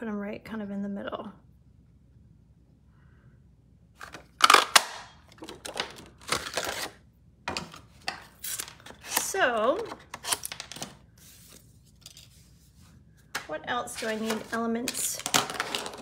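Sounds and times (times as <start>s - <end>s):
cardstock rustling and sliding: 13.9s - 16.0s.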